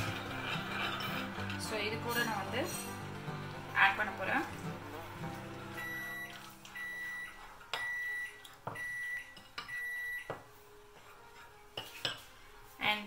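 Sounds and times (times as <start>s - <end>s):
microwave oven beeping: 5.5s - 10.3s.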